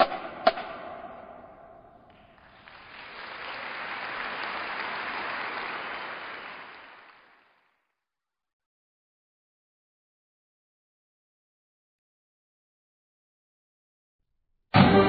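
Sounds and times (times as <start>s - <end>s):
crowd applauding: 2.1s - 7.9s.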